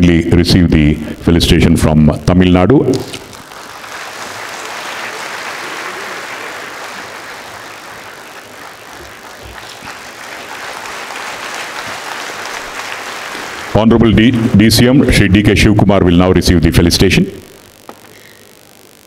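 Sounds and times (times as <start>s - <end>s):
audience applauding: 3.2s - 15.0s.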